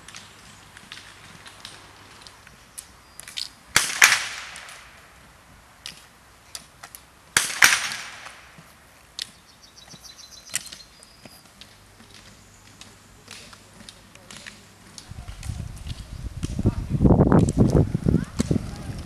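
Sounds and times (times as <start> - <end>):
ski pole tips striking asphalt: 5.8 - 16.6.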